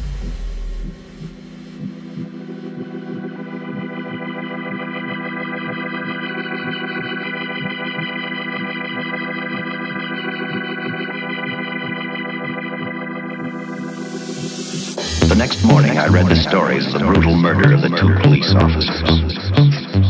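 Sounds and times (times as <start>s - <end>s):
steady low beat: 0.0s - 5.0s, 10.5s - 20.0s
sustained chords: 0.0s - 20.0s.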